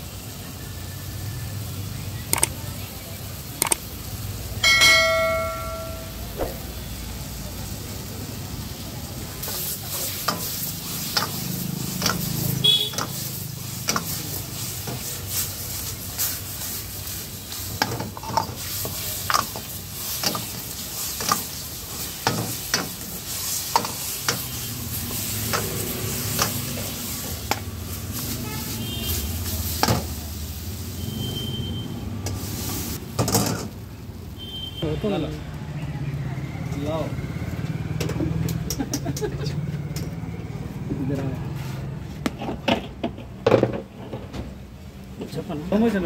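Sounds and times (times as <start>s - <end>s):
food sizzling: 0.0s - 34.8s.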